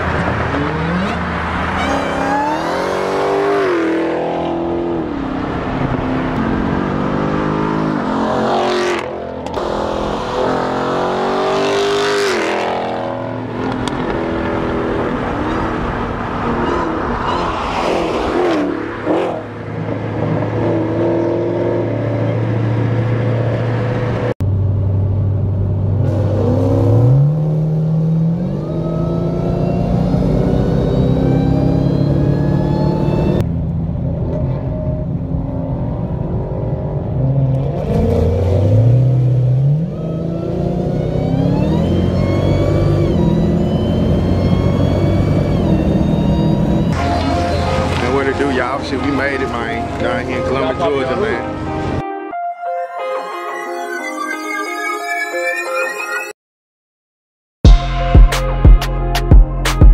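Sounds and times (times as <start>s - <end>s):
cars accelerating hard: 0.0s - 24.3s, 37.0s - 52.0s.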